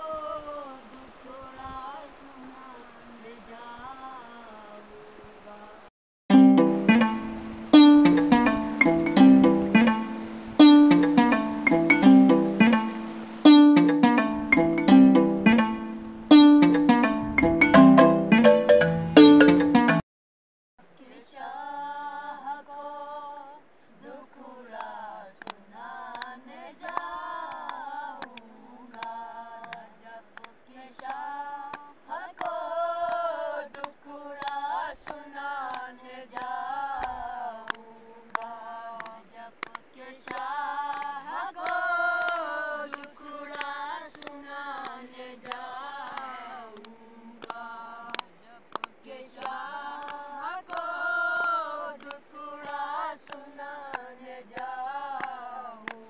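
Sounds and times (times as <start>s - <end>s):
boys singing unaccompanied: 21.0s - 56.0s.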